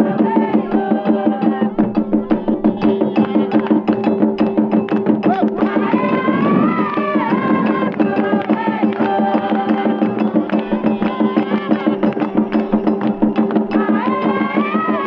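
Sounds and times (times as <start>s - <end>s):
fast hand drum percussion: 0.0s - 15.0s.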